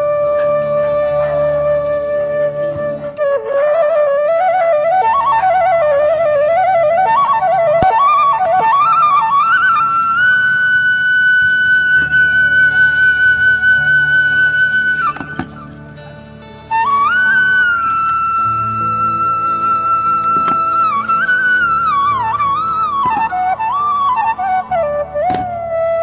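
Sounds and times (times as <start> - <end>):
soft low accompaniment: 0.0 - 26.0
solo flute melody: 0.0 - 26.0.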